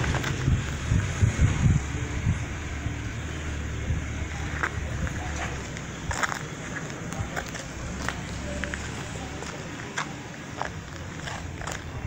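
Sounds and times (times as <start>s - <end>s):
wind buffeting microphone: 0.0s - 9.6s
engine humming steadily: 0.0s - 12.0s.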